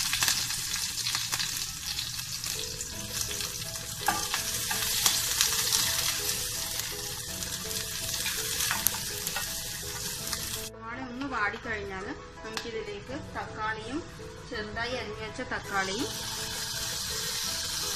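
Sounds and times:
onions sizzling in hot oil: 0:00.0 - 0:10.7, 0:15.7 - 0:17.9.

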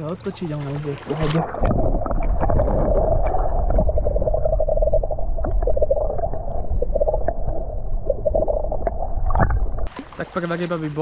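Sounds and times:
water sloshing and gurgling: 0:00.0 - 0:11.0
steady low rumble: 0:01.5 - 0:09.9.

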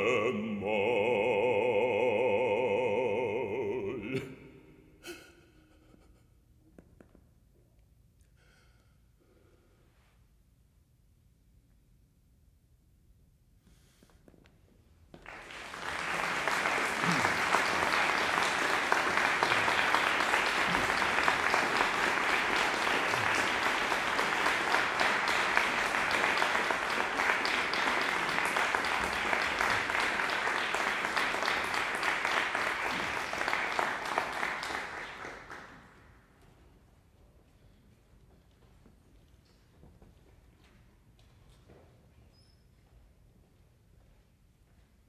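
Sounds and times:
audience applauding: 0:15.1 - 0:36.1.

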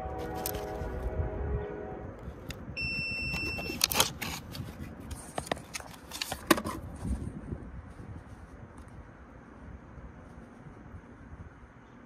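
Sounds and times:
electronic beep: 0:02.8 - 0:03.8
clicks and rustles of cardboard box: 0:03.3 - 0:07.1.

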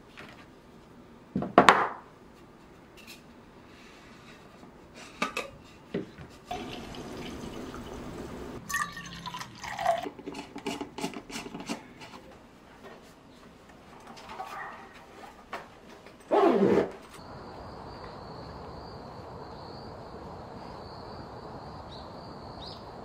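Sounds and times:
coffee pouring into tumbler: 0:06.5 - 0:10.8.

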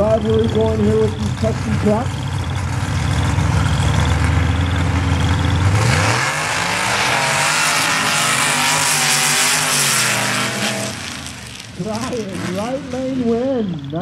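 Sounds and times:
truck engines at full throttle: 0:00.0 - 0:14.0
tyres spraying sand and dirt: 0:05.7 - 0:13.7.

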